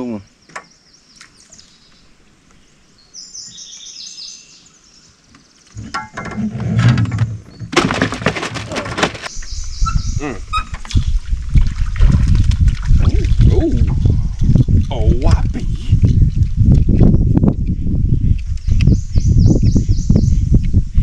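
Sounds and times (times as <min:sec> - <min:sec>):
bird chirping: 0:00.0 - 0:05.9, 0:09.3 - 0:11.2, 0:17.5 - 0:20.6.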